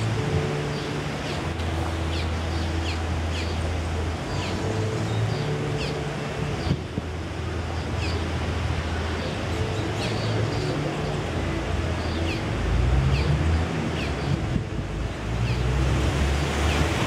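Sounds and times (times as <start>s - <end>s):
wind or surf wash: 0.0s - 17.0s
bird chirping: 0.7s - 3.6s.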